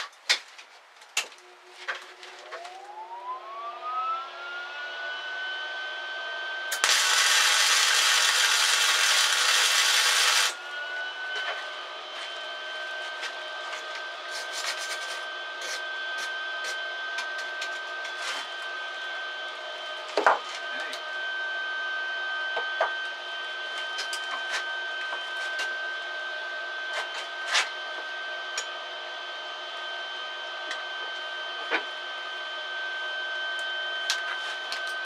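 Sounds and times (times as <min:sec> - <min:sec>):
steady high whine: 0:01.2 - 0:35.0
welding arc crackling and hissing: 0:06.7 - 0:10.6.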